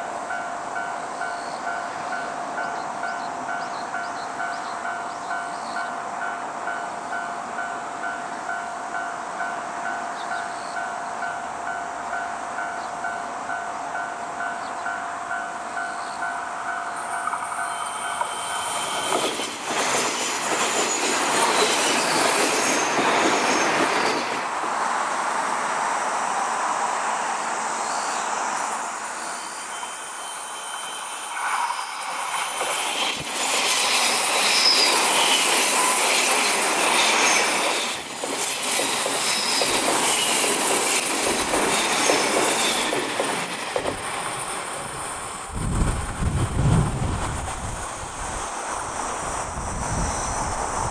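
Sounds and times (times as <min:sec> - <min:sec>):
steady high ringing tone: 0:00.0 - 0:19.6, 0:27.8 - 0:33.2
train wheel and rail noise: 0:00.0 - 0:50.9
high wheel squeals: 0:16.9 - 0:24.4, 0:27.8 - 0:45.1.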